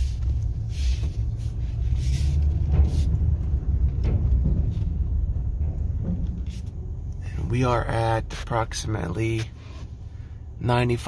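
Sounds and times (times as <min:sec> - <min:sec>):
brief air hisses: 0:00.0 - 0:03.1
truck engine rumble: 0:00.0 - 0:11.0.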